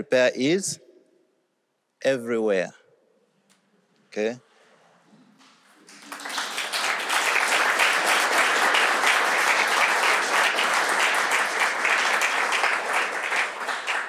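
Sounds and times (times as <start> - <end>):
audience applauding: 5.8 - 14.0.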